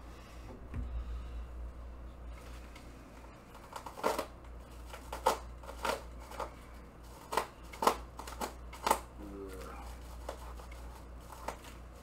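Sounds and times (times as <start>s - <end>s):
knife cutting plastic wrapping: 3.5s - 12.0s.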